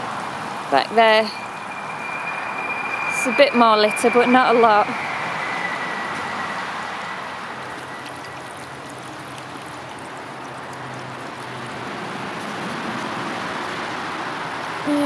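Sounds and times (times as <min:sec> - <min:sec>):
brook water running over stones: 0:07.6 - 0:14.8.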